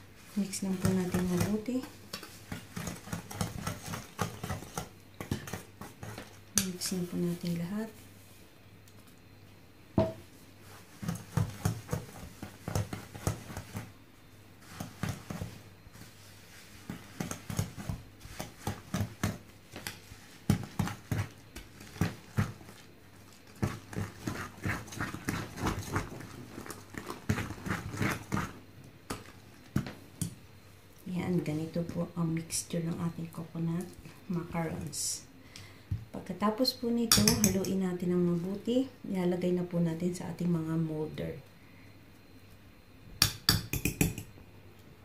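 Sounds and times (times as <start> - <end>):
whisk scraping in bowl: 0.2 - 6.4, 10.6 - 13.9, 14.6 - 28.6.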